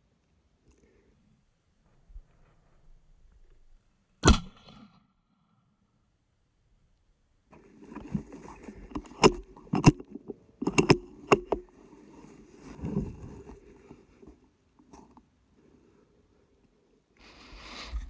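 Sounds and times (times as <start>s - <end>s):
handling rustling: 7.6s - 15.3s
sharp clicks and knocks: 7.9s - 11.7s.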